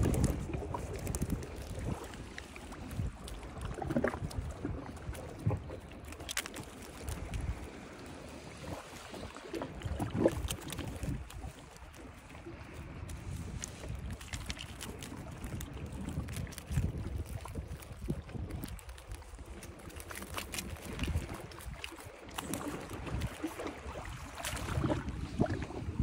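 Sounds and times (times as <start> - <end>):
keep net clicks and rustles: 0.0 - 3.6, 5.8 - 7.8, 10.2 - 23.6
wind rumbling on microphone: 0.0 - 26.0.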